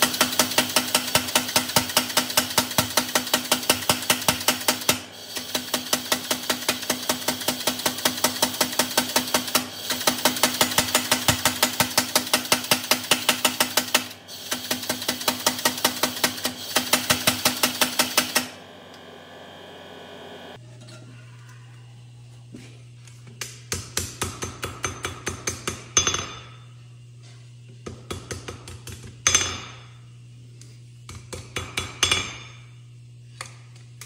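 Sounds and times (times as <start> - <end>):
power hammer striking hot steel: 0.0 - 18.6, 27.9 - 30.0.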